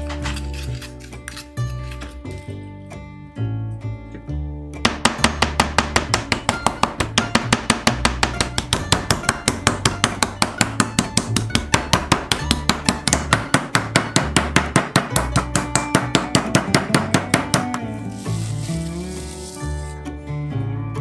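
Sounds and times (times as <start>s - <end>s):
meat mallet pounding on board: 4.8s - 17.9s.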